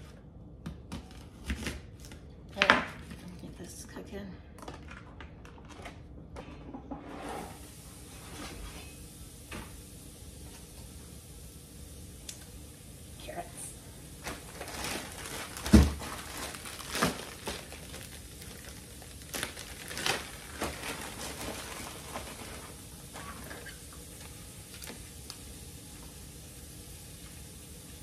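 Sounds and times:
plastic bag crinkling: 14.2 - 25.1.

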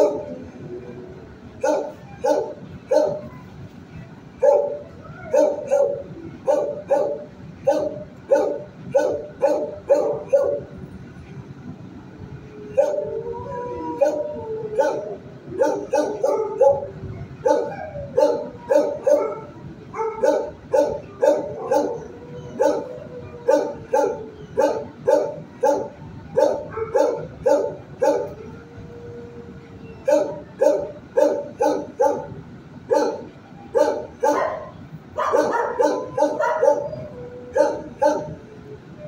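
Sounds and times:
dog barking: 0.0 - 0.3, 1.6 - 3.4, 4.4 - 10.7, 12.7 - 13.1, 14.0 - 14.2, 14.8 - 28.4, 30.0 - 38.4.

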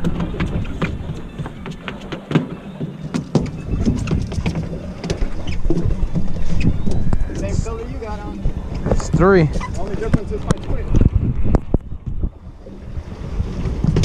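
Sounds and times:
fish flapping against boat: 0.0 - 7.6
wind rumble on microphone: 0.0 - 14.0.

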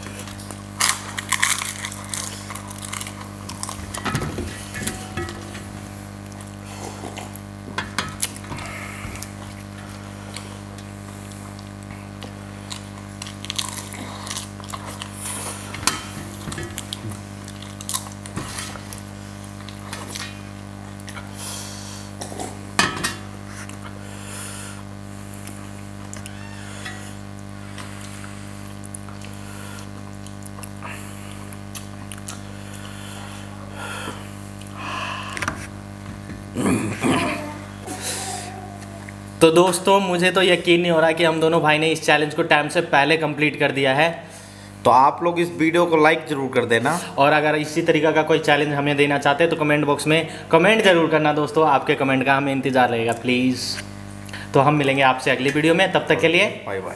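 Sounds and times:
crisp puris crunching: 0.0 - 5.2, 9.2 - 21.3
steady low hum: 0.0 - 56.9.

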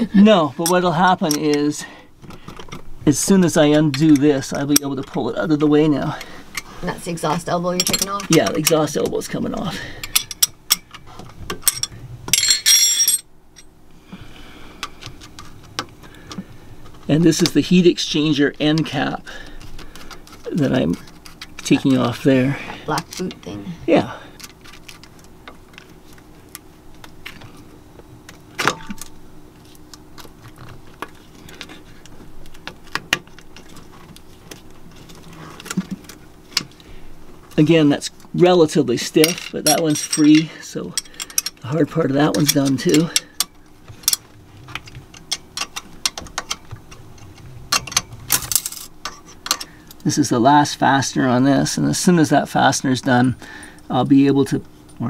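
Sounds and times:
faint steady hum: 0.0 - 55.0
hand tools clinking on metal: 7.8 - 8.8, 11.6 - 13.7, 39.2 - 44.2.

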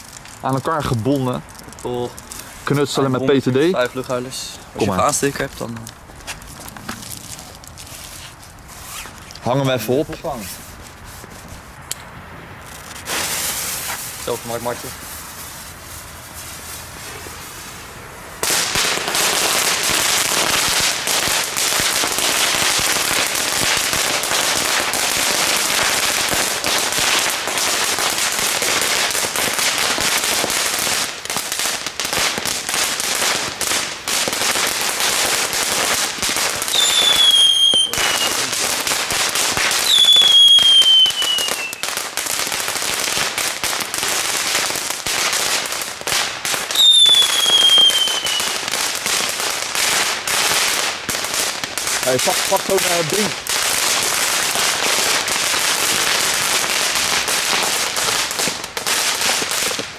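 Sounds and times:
firecrackers crackling pops: 0.0 - 17.6, 18.4 - 59.9
falling whistles: 36.7 - 38.4, 39.8 - 41.8, 46.8 - 48.5.

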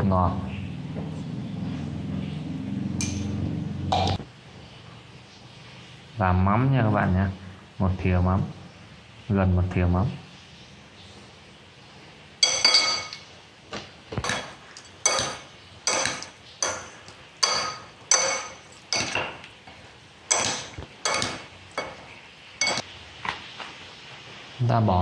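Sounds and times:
metal spoon clinking ceramic bowl: 3.0 - 4.2, 12.4 - 13.3, 14.2 - 19.5, 20.3 - 22.8.

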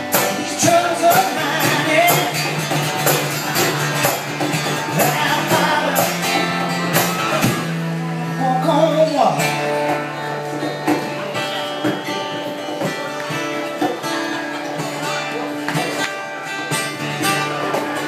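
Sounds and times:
man singing: 0.0 - 3.1, 3.7 - 7.2, 8.3 - 9.6
box drum beat: 0.0 - 7.9
acoustic guitar strumming: 0.0 - 18.0.

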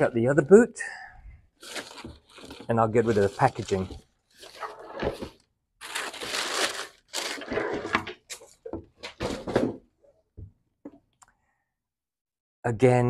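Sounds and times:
tissue paper and cardboard rustling: 1.6 - 9.5.

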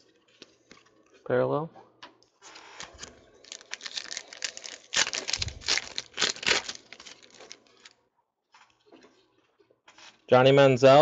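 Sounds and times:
foil wrapper crinkling: 2.5 - 8.0.

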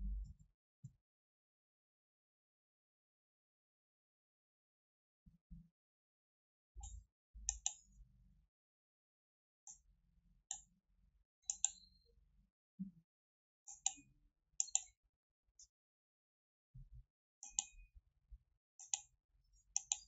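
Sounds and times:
computer mouse clicking: 6.8 - 7.8, 11.5 - 11.8, 14.6 - 14.9, 19.8 - 20.0.

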